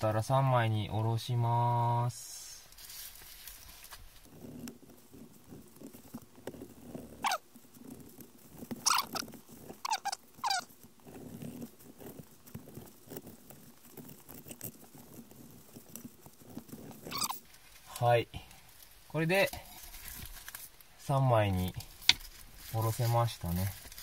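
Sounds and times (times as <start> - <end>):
short sharp squeaks: 8.8 - 10.7, 17.0 - 17.5.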